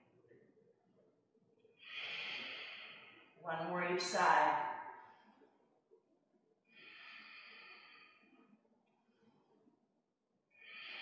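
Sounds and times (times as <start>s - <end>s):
woman breathing: 1.8s - 3.4s, 6.7s - 8.6s, 10.5s - 11.0s.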